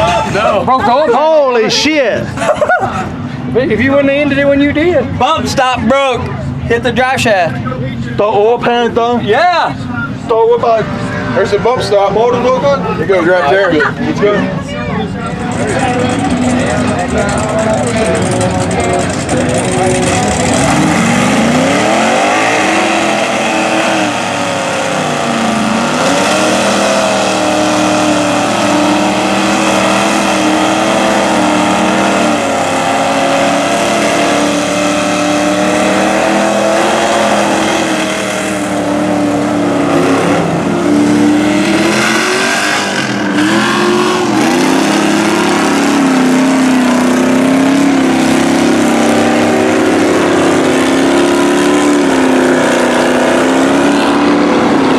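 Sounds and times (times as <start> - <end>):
truck engines revving hard: 0.0 - 54.9.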